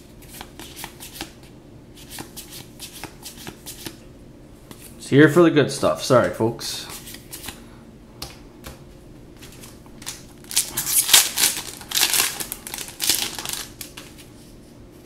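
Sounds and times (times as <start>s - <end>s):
foil wrapper crinkling and tearing: 10.0s - 14.2s.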